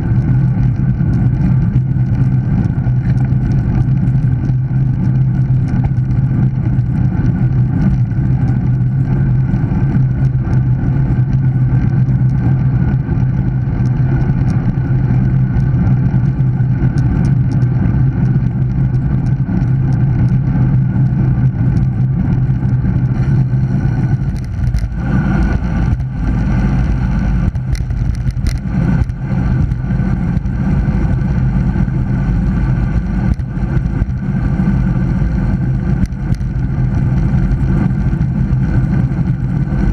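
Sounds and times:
bike tyre noise on tarmac: 0.0s - 39.9s
wind buffeting microphone: 0.0s - 39.9s
sharp ticks: 11.4s - 39.9s.

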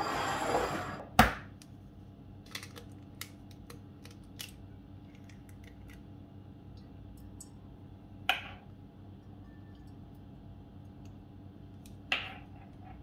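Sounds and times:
egg cracking: 2.4s - 6.3s.

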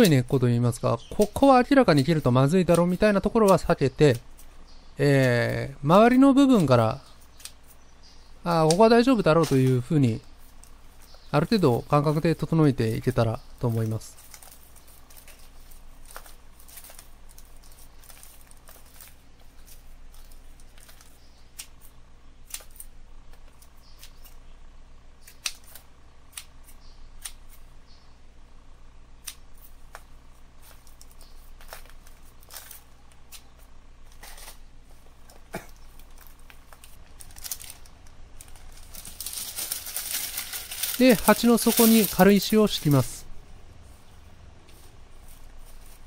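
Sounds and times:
roots and soil rustling: 8.4s - 21.3s, 34.3s - 46.0s
plastic bag rustling: 9.1s - 21.2s, 34.1s - 46.0s.

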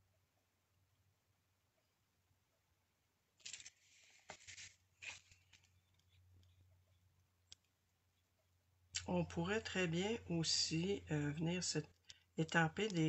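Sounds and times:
paper card rustling and scraping: 3.4s - 6.2s.

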